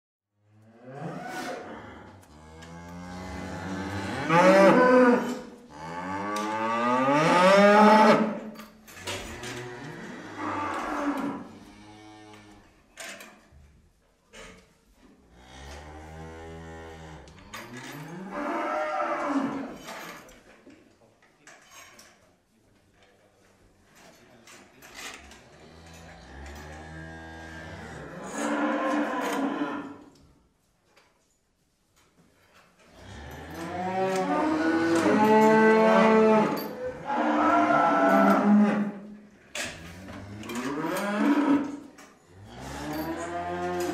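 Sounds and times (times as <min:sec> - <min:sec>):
cow mooing: 0:00.8 - 0:08.4, 0:09.4 - 0:12.4, 0:15.4 - 0:19.8, 0:26.2 - 0:30.0, 0:33.0 - 0:39.0, 0:40.2 - 0:41.8, 0:42.4 - 0:43.9.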